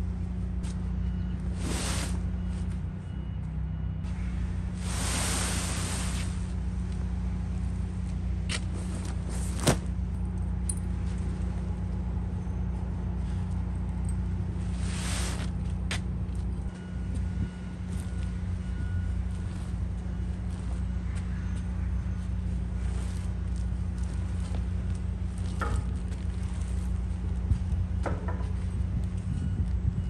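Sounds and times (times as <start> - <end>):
heavy tarp rustling: 1.5 - 2.6, 4.7 - 6.6, 8.6 - 10.0, 14.6 - 15.6.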